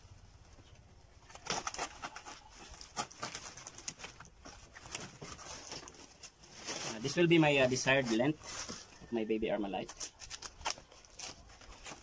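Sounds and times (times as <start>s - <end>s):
banana leaf rustling and crackling: 1.2s - 12.0s.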